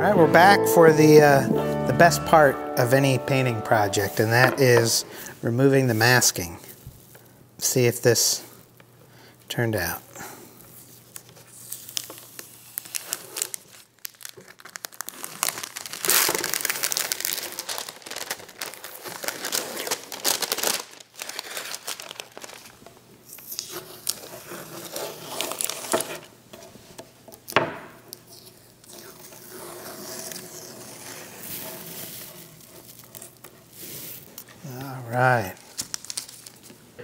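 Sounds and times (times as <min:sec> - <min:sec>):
tape and paper crinkling and tearing: 0:10.7 - 0:26.4, 0:27.4 - 0:36.8.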